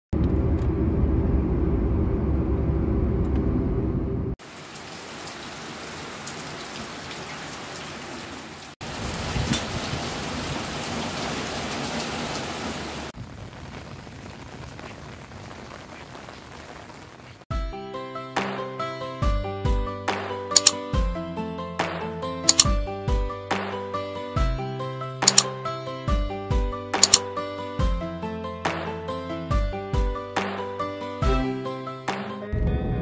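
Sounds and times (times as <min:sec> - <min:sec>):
loud low rumble: 0:00.1 - 0:04.4
heavy rain: 0:04.4 - 0:17.4
rain drop ticks: 0:04.4 - 0:17.4, 0:20.6 - 0:20.8, 0:27.0 - 0:27.2.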